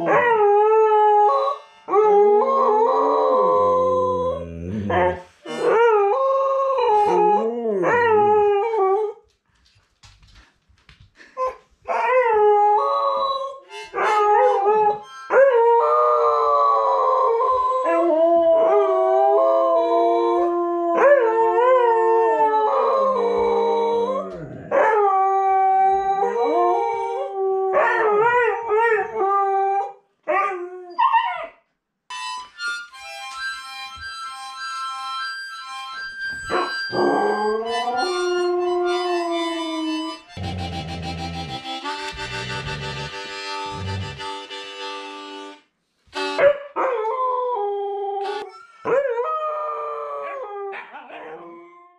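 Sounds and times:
dogs howling: 0.0 - 9.1, 15.6 - 30.7
harmonica playing held chords: 1.1 - 4.0, 5.3 - 5.8, 13.6 - 16.3, 32.1 - 46.4, 48.2 - 48.9.

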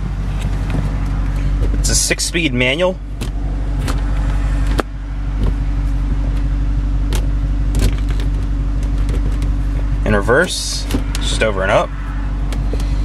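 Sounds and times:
gear shifter clicks and clunks: 0.0 - 11.5, 12.4 - 13.0
car engine idling: 0.0 - 13.0.

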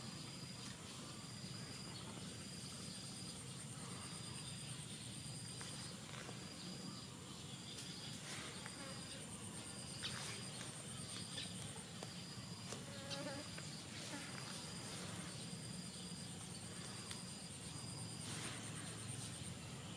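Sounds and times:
insect high chirp: 0.0 - 19.9
high-pitched insect buzz: 12.6 - 16.0.

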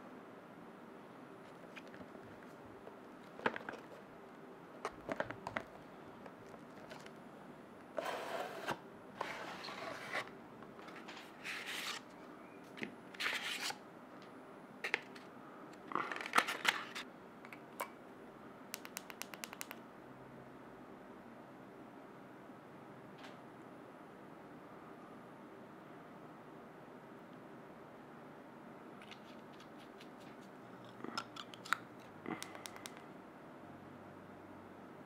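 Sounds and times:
cardboard box scraping and rustling: 8.0 - 10.3.

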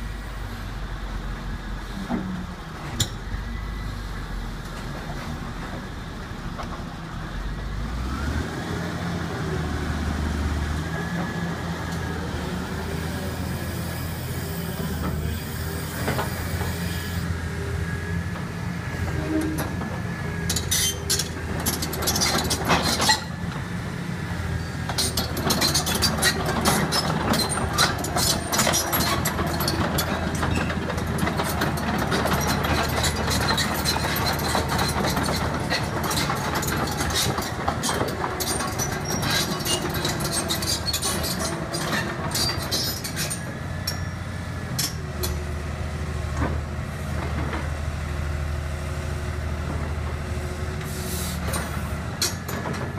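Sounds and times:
metallic clatter of steel tracks: 13.9 - 17.2, 18.3 - 23.8, 24.6 - 45.6, 50.8 - 52.9.

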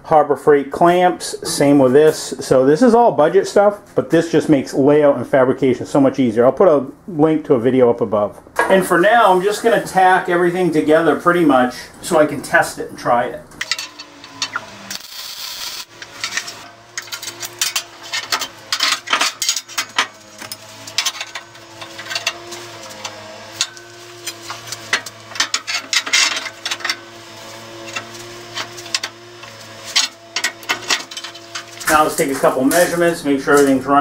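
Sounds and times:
welding tack crackle: 13.7 - 33.8
steel tube and clamps clinking: 17.0 - 22.4, 23.0 - 27.1.

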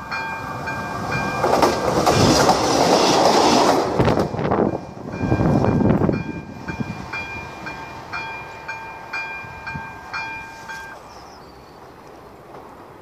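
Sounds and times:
level crossing warning bell: 0.0 - 1.7, 4.3 - 11.0
train rumble: 0.0 - 13.0.

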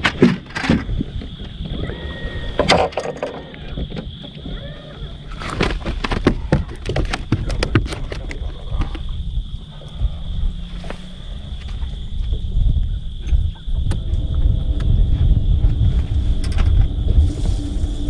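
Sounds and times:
knocks and clicks on boat deck: 5.6 - 9.1, 13.2 - 15.0
steady low rumble: 7.1 - 18.0.

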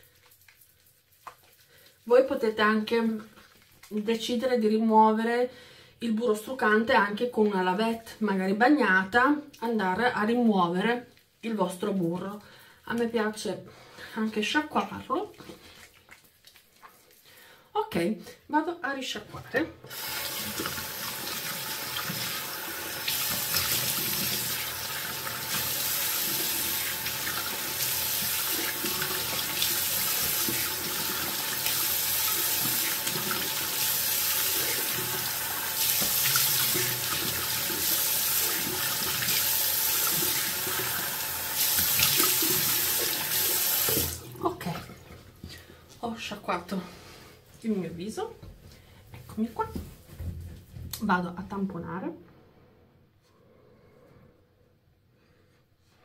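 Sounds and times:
tap running into a sink: 19.8 - 44.2
water splashing on face: 19.9 - 45.2.

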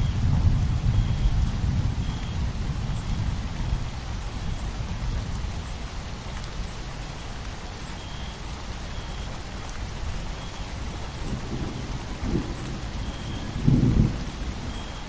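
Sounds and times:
thunder rumble: 0.0 - 5.6, 11.2 - 15.0
heavy rain: 0.0 - 15.0.

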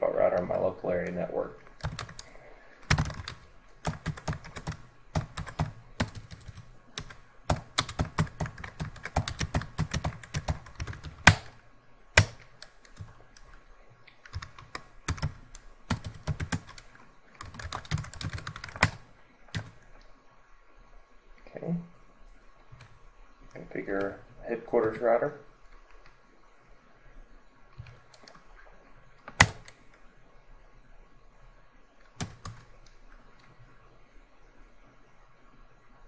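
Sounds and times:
typing on keyboard: 1.7 - 11.6, 12.2 - 13.5, 14.2 - 19.8, 29.3 - 29.8, 32.2 - 32.7.

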